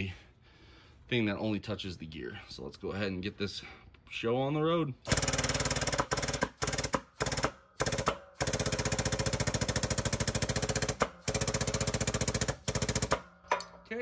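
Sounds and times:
hydraulic pump chattering: 0:05.1 - 0:13.7.

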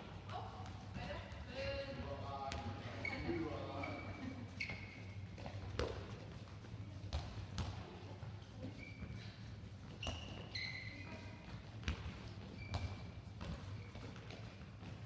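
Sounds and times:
shoes squeaking on court: 0:02.5 - 0:15.0
balls bouncing and smacking hands: 0:05.4 - 0:07.8.

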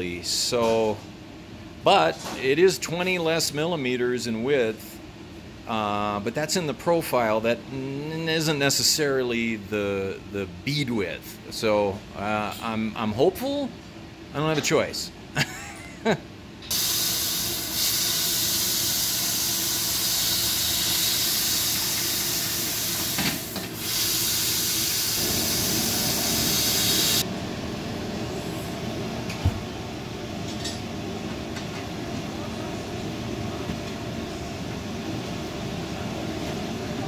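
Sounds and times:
compressed air hissing: 0:16.7 - 0:27.2.

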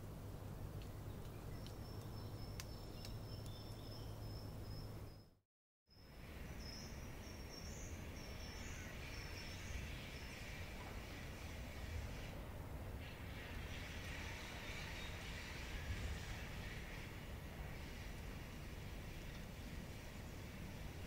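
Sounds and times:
birds chirping: 0:00.9 - 0:05.4.

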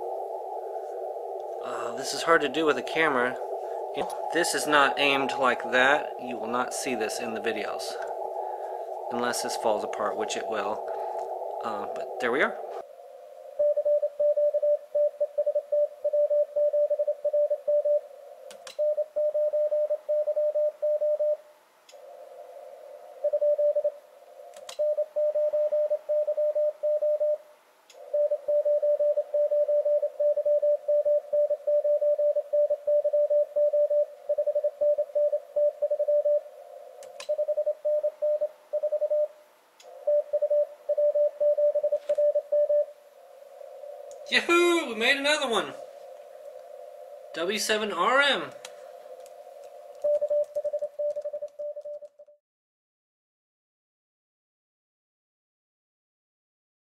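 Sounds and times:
receiver hiss: 0:00.0 - 0:52.2
morse code tone: 0:13.6 - 0:18.0, 0:24.8 - 0:27.4, 0:28.1 - 0:36.4, 0:37.3 - 0:39.3, 0:40.0 - 0:42.9, 0:50.0 - 0:52.0
sharp clicks: 0:18.5 - 0:18.8, 0:24.5 - 0:24.8, 0:37.0 - 0:37.4, 0:44.0 - 0:44.3, 0:48.5 - 0:52.2.

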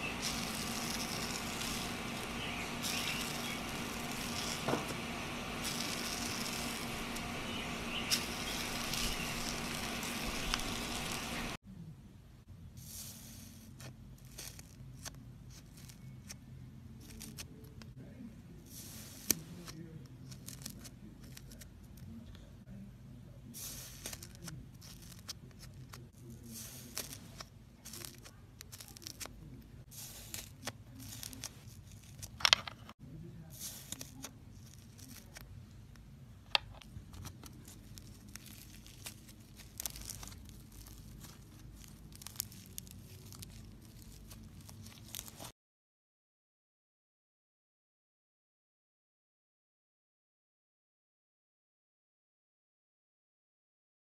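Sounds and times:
slime crackling: 0:00.0 - 0:11.6, 0:23.6 - 0:29.4, 0:30.0 - 0:32.4, 0:37.1 - 0:45.5
slime tearing crackles: 0:00.0 - 0:11.6, 0:23.7 - 0:29.4, 0:30.0 - 0:32.4, 0:37.2 - 0:45.5.

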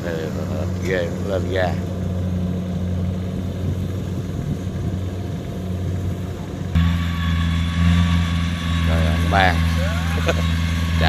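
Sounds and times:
combine harvester engine droning: 0:00.0 - 0:11.0
thin high whine: 0:06.8 - 0:11.0.

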